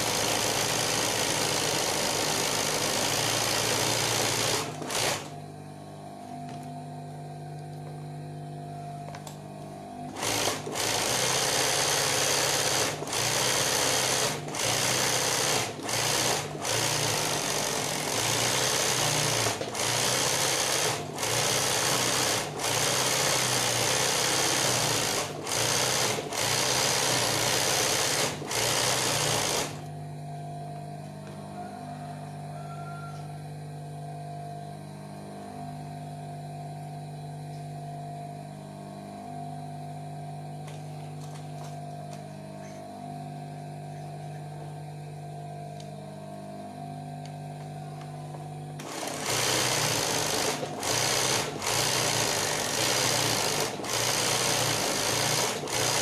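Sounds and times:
sewing machine stitching: 0.0 - 5.4, 10.0 - 29.9, 48.8 - 56.0
sewing machine motor hum: 0.0 - 56.0.

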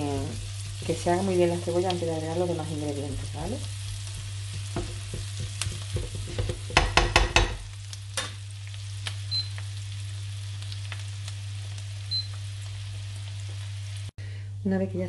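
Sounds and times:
onion sizzling in frying pan: 0.0 - 14.2
spatula knocking and scraping pan: 4.0 - 8.4.

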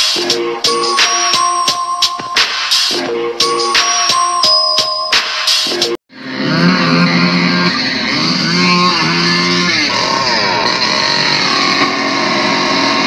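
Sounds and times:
motor revving: 6.1 - 13.0.

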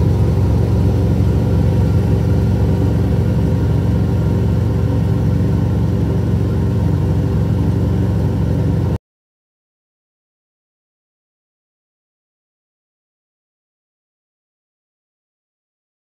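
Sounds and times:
fume hood exhaust fan rumble: 0.0 - 9.0.

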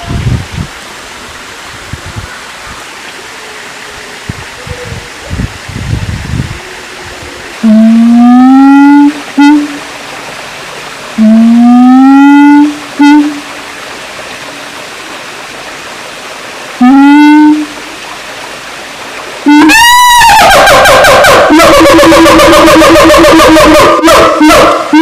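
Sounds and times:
steady hiss: 0.0 - 19.8.

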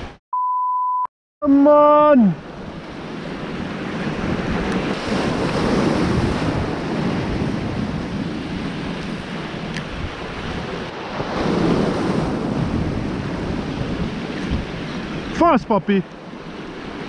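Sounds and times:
surf washing over rocks: 1.5 - 17.0
wind buffeting microphone: 2.5 - 15.4.

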